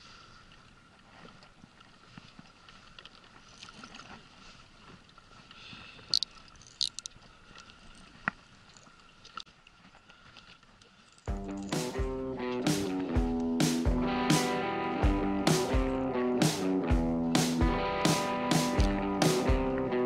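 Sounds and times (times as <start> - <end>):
water around a boat: 0.0 - 13.8
wind: 0.0 - 20.0
fishing reel clicks: 6.1 - 7.1.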